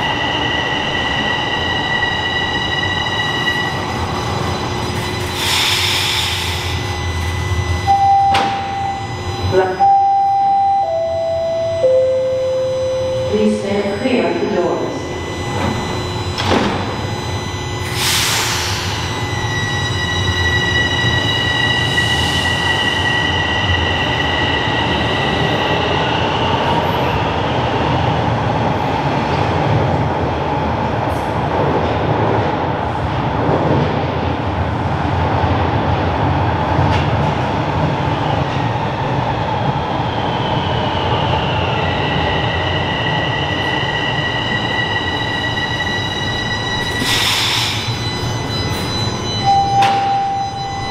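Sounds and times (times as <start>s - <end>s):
high-pitched train squeal: 0.0s - 9.8s, 14.3s - 28.1s, 39.4s - 50.9s
subway train rumble: 0.0s - 50.9s.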